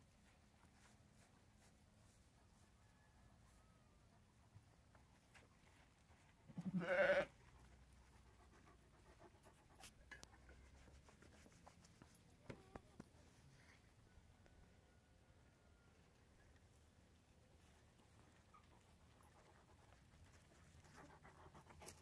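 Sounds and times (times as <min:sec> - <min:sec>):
sheep bleating: 0:06.6 - 0:07.3.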